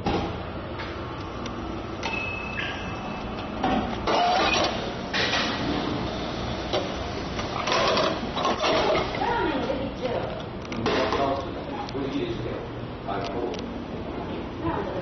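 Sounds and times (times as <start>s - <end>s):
vending machine humming: 0.0s - 15.0s
steady beep: 2.0s - 3.4s.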